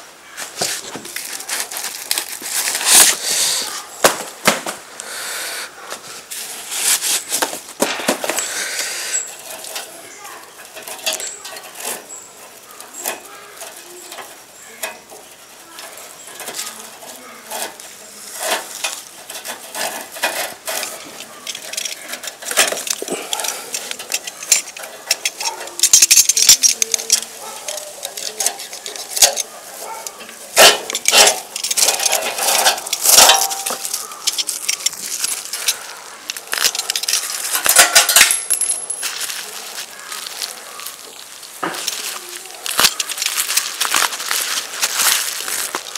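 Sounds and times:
metallic clinks and knocks: 0:10.6 - 0:12.3, 0:18.5 - 0:39.4.

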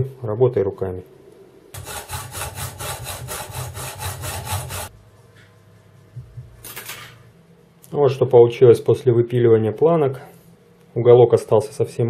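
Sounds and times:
hacksaw cutting metal: 0:01.8 - 0:04.9.

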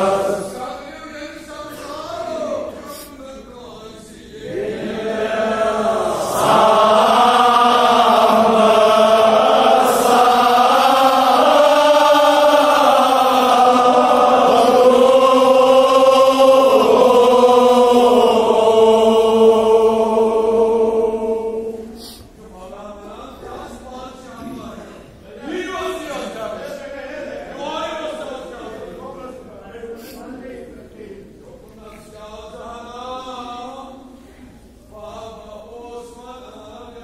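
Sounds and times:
men chanting: 0:00.0 - 0:00.9, 0:03.7 - 0:22.0.

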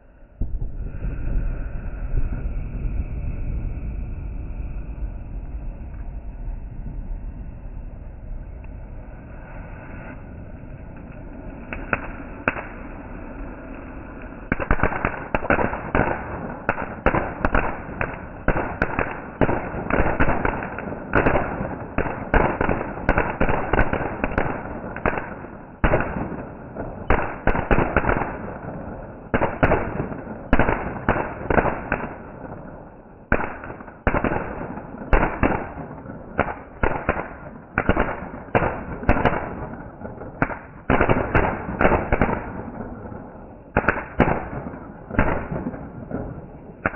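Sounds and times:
fireworks bangs and crackles: 0:00.0 - 0:46.9.

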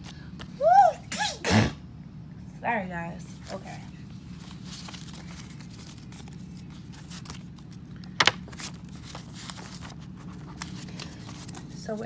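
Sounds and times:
paper banknotes rustling: 0:03.4 - 0:12.0
plastic envelope crinkling: 0:04.2 - 0:12.0.

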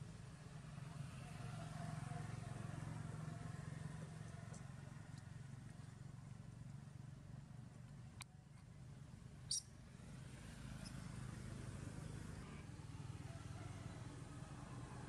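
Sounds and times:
small faint ticks: 0:04.5 - 0:05.9.

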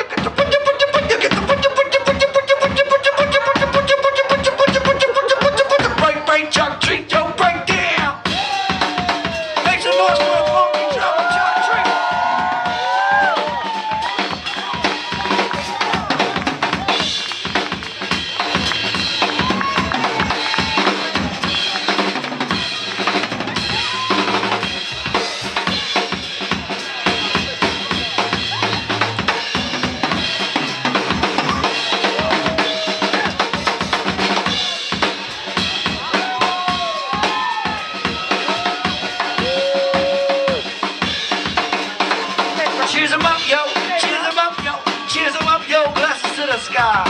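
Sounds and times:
harmonica wailing bent notes: 0:00.0 - 0:06.6
drum kit playing a busy beat: 0:00.0 - 0:47.0.

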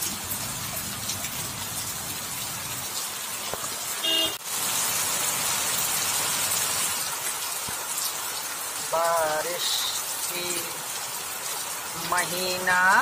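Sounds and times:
heavy rain falling: 0:00.0 - 0:13.0
rain falling into bucket of water: 0:00.0 - 0:13.0
vehicle horn toot: 0:04.0 - 0:04.4.

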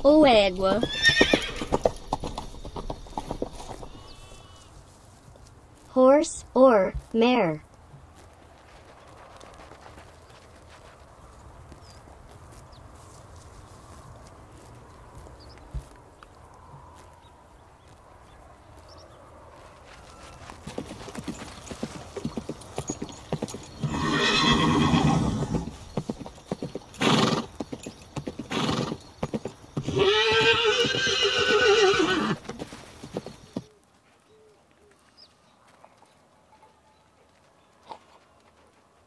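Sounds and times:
horse hooves clip-clopping: 0:00.0 - 0:06.0, 0:06.8 - 0:39.0
horses neighing: 0:00.6 - 0:04.7, 0:20.7 - 0:33.6.

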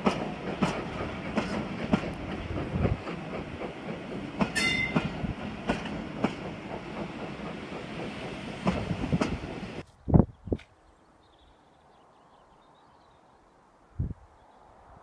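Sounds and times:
train rumble: 0:00.0 - 0:09.8
train wheels clicking over rail joints: 0:00.0 - 0:09.8.

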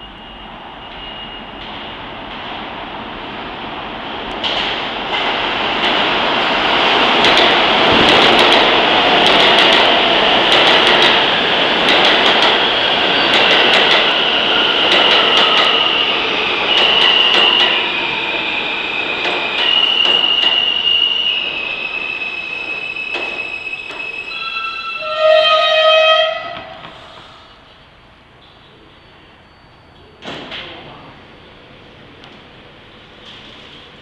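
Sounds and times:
subway train wheels rumbling: 0:00.0 - 0:34.0
clacks over rail joints: 0:04.4 - 0:06.1, 0:10.5 - 0:12.6
high pitched train whine: 0:06.1 - 0:27.9.

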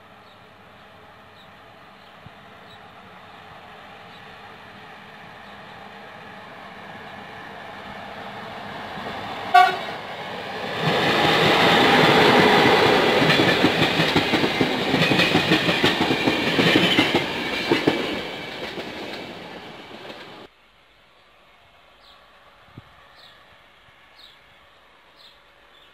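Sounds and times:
train horn blast: 0:09.5 - 0:10.0.

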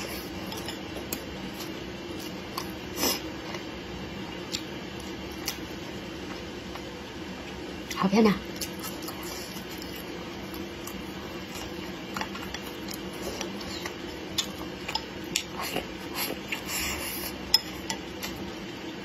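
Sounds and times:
faint steady hum: 0:00.0 - 0:19.0
close-up chewing: 0:08.5 - 0:18.6.

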